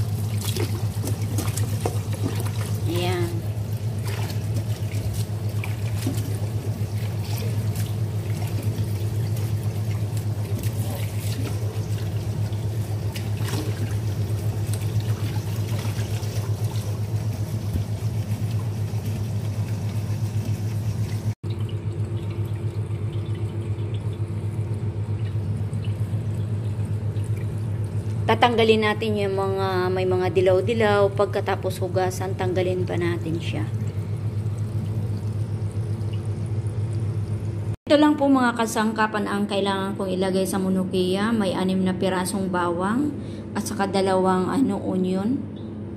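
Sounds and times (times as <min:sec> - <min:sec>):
running water splashing on leaves: 0:00.0 - 0:21.4
steady low hum: 0:00.0 - 0:45.9.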